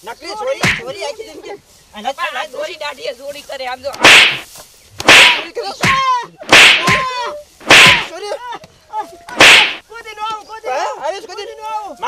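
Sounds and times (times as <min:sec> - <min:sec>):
stick striking with whip-like cracks: 0:00.6 - 0:00.9, 0:03.9 - 0:08.1, 0:09.3 - 0:09.8.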